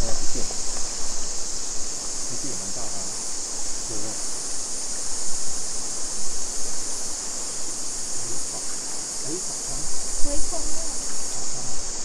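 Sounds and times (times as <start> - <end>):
cicadas chorus: 0.0 - 12.0
creek water running: 6.4 - 12.0.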